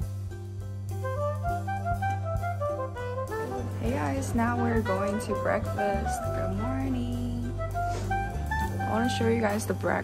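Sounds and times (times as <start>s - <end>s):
low bass line: 0.0s - 10.0s
melody of short stepping notes: 0.0s - 10.0s.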